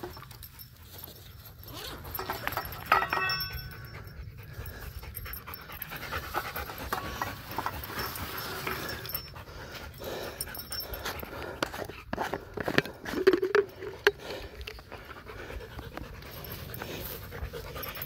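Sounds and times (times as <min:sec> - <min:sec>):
sharp ringing clink: 0:00.0 - 0:11.4
dog panting hard: 0:03.6 - 0:18.0.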